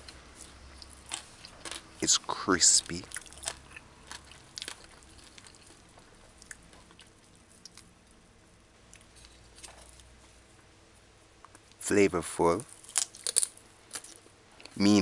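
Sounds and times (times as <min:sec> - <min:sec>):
crunching fried chicken: 0:00.0 - 0:07.9, 0:12.5 - 0:14.8.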